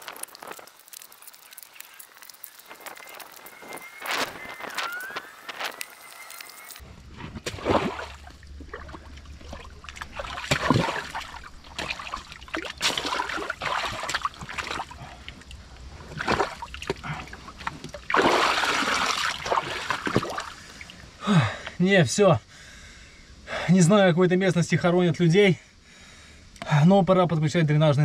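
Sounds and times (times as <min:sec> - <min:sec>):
muddy water splashing: 0:00.1 - 0:21.0.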